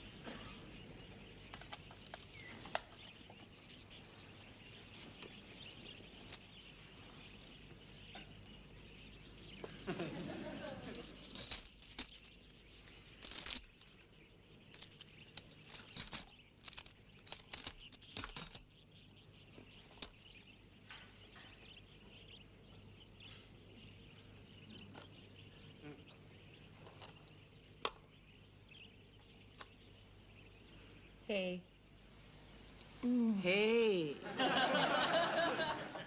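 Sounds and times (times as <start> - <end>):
coins clinking and rattling: 9.6 - 14.1, 14.7 - 18.7, 19.9 - 20.2, 26.8 - 27.9.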